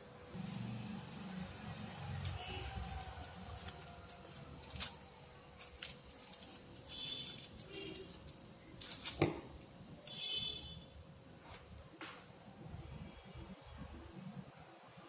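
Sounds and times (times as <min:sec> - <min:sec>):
paper rustling and crinkling: 0:02.1 - 0:09.8.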